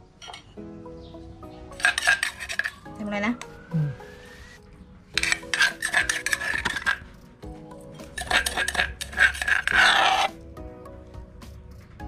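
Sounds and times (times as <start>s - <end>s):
background music: 0.0s - 12.0s
metal spoon clinking against bowl: 1.8s - 2.8s, 5.2s - 7.0s, 8.0s - 10.3s.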